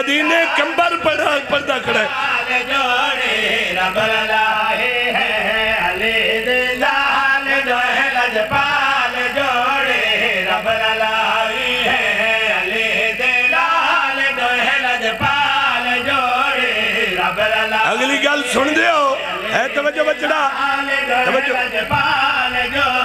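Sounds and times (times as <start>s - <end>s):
man chanting into a microphone: 0.0s - 23.0s.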